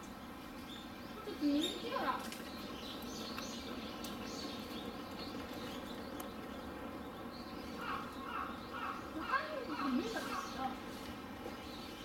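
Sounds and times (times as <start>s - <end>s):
outdoor background noise: 0.0s - 12.0s
faint bird calls: 7.4s - 12.0s.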